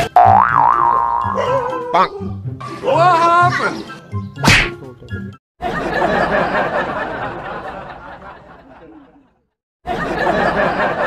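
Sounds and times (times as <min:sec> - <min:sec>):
crowd laughing: 0:05.6 - 0:11.0.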